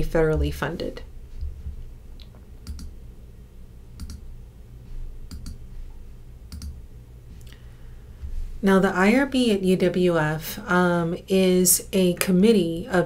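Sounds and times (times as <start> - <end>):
low steady hum: 0.0 - 13.0
computer mouse clicks: 2.2 - 2.9, 4.0 - 4.2, 5.3 - 5.6, 6.5 - 6.8.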